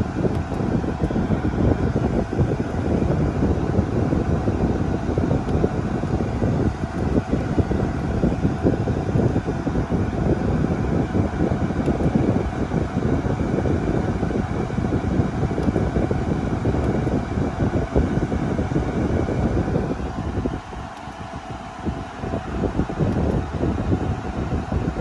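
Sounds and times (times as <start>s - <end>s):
steady low rumbling noise: 0.0s - 25.0s.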